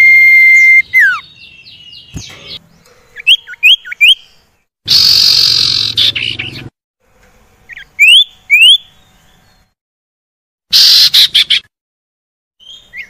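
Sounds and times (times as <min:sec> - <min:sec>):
bird rising whistles: 0:00.0 - 0:01.2
bird harsh rasping chatter: 0:04.9 - 0:06.7.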